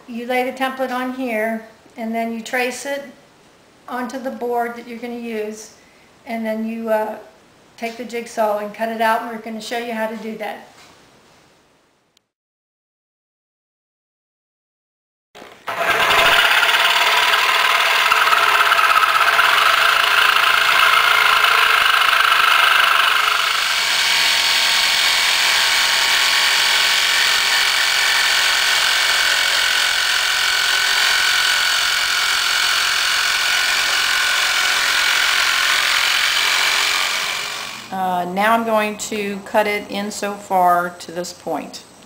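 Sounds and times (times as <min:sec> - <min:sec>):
jigsaw cutting wood: 0:15.4 - 0:37.9.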